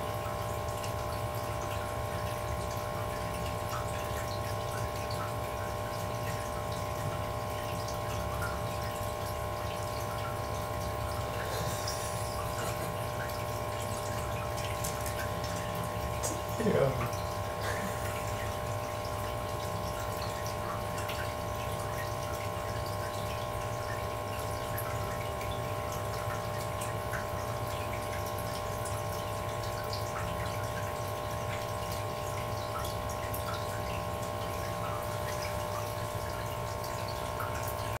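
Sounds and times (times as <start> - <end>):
air pump humming: 0.0 - 21.8
bubbles trickling: 0.0 - 38.0.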